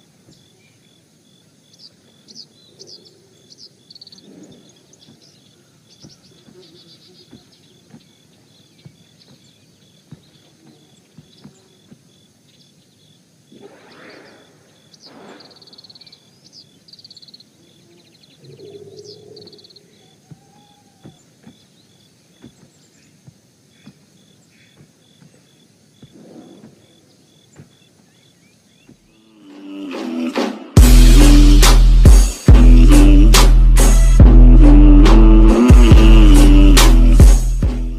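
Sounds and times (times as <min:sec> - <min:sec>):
birds chirping: 0:00.0 - 0:29.5
high insect chirping: 0:00.0 - 0:30.3
music: 0:29.4 - 0:37.9.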